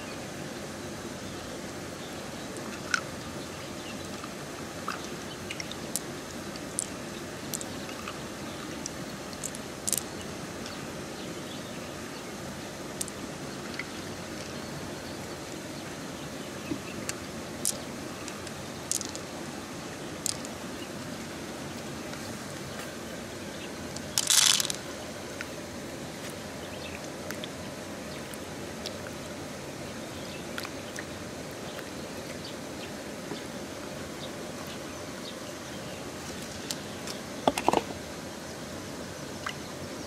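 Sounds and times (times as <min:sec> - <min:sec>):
running water hiss: 0:00.0 - 0:40.0
pearls clicking on shell: 0:06.8 - 0:08.2, 0:09.4 - 0:10.1, 0:17.6 - 0:19.2, 0:20.2 - 0:20.6, 0:24.0 - 0:24.8
pearls rattling into shell: 0:09.4 - 0:10.1, 0:18.4 - 0:19.2, 0:20.2 - 0:20.6, 0:24.0 - 0:24.8.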